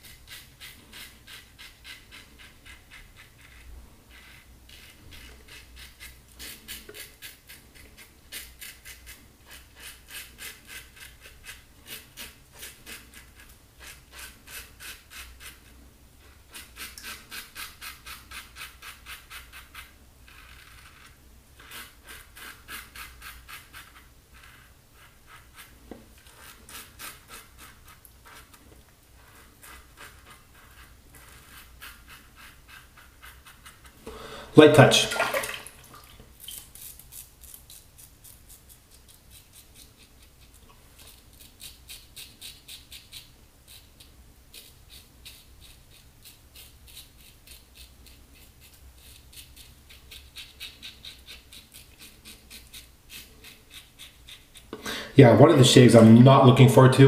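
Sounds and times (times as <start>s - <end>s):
razor scraping stubble: 16.5s - 28.6s, 29.2s - 34.0s, 36.4s - 54.8s.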